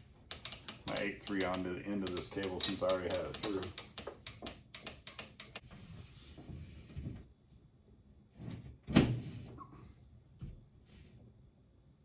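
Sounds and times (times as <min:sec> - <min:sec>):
sharp clicks of cable: 0:00.3 - 0:05.6.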